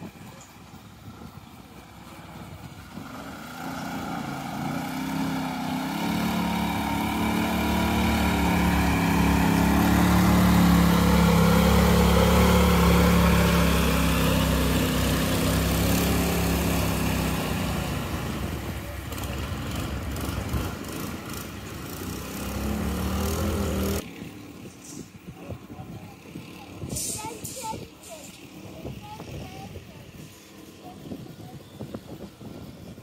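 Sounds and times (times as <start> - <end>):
boat engine running: 0.1 - 24.0.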